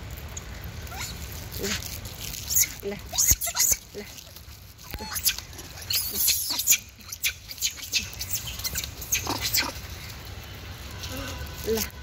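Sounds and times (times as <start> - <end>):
monkeys giving lower calls: 0.8 - 4.2, 4.9 - 10.1
monkeys squeaking and squealing: 0.8 - 10.2.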